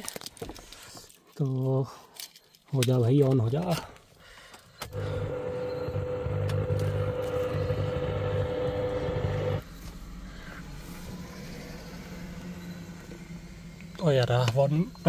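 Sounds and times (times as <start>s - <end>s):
diesel engine starting and idling: 4.9s - 9.6s.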